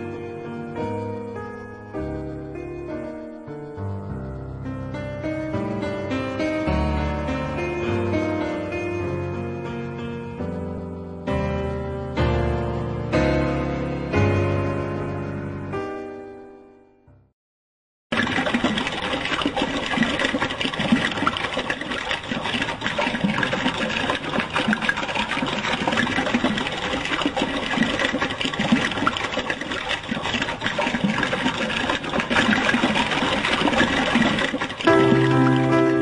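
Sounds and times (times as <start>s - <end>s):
water splashing in a stream: 18.1s - 36.0s.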